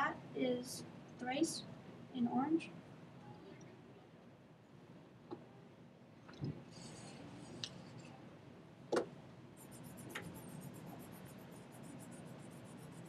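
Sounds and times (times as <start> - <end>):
coloured pencil shading paper: 9.6 - 13.0.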